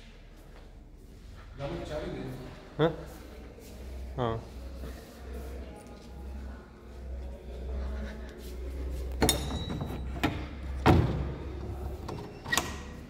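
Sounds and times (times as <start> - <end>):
metal bolt clinking: 9.2 - 10.4.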